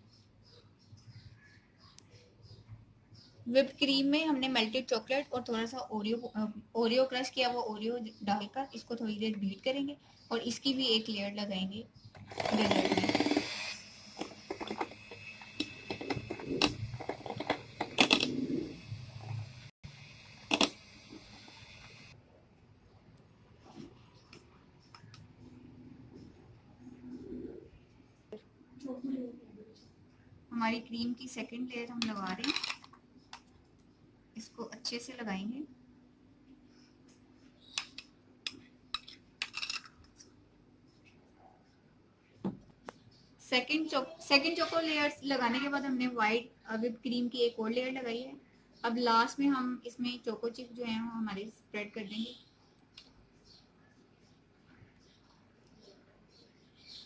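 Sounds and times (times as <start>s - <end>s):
electric hand mixer whining: 12.3s - 18.1s.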